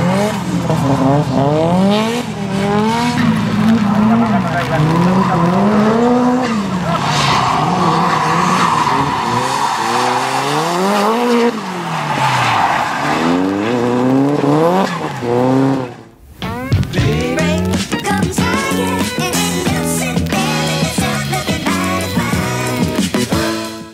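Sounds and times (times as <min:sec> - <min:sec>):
tyre noise: 0:00.0 - 0:23.7
car engine revving: 0:00.0 - 0:23.8
music: 0:16.4 - 0:23.9.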